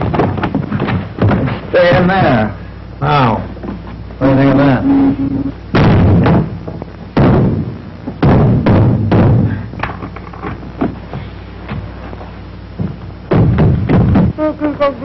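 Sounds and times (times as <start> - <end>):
heavy stamping thuds overhead: 0.0 - 2.4, 5.7 - 9.6, 12.7 - 14.4.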